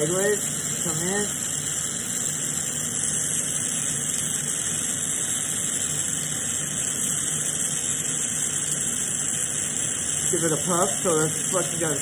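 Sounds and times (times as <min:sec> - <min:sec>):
torch flame hissing: 0:00.0 - 0:12.0.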